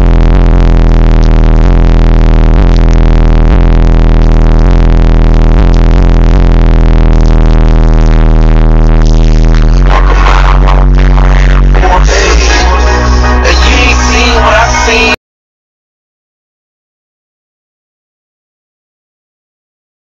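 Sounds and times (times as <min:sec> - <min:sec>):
distorted deep bass note: 0:00.0 - 0:15.2.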